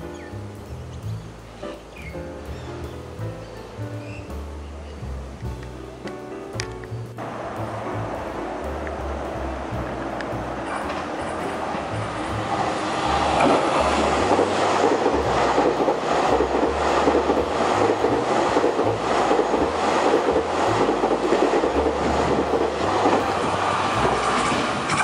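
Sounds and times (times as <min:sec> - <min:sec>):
clickety-clack over rail joints: 0:05.6 - 0:25.0
train wheels rushing on rail: 0:07.2 - 0:25.0.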